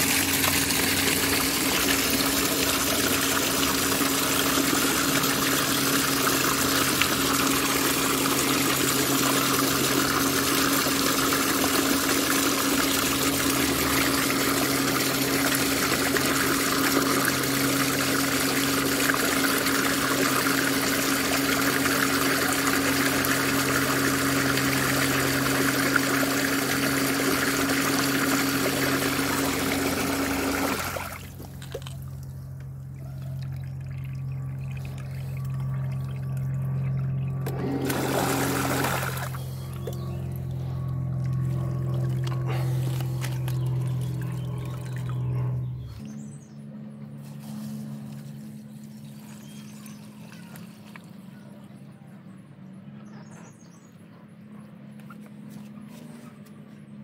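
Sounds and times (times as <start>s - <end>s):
water gushing into tub: 0.0s - 32.2s, 37.3s - 45.2s
pump humming: 0.0s - 52.2s.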